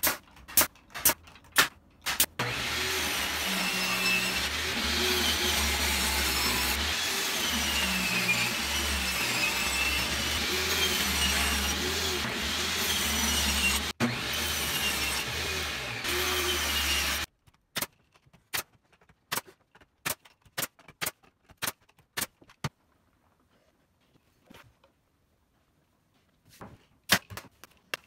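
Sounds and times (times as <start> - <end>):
brad nailer firing: 0.0 - 12.4
table saw whining: 2.4 - 17.3.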